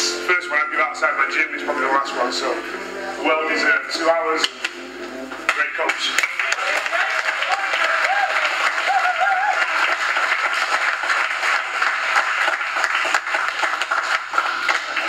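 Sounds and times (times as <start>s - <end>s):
group applauding: 5.5s - 15.0s.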